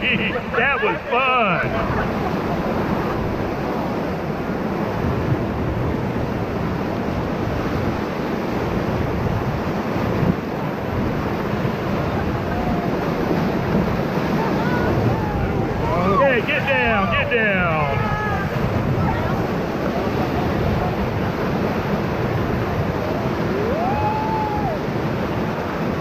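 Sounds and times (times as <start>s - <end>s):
whitewater rapids roaring: 0.0s - 26.0s.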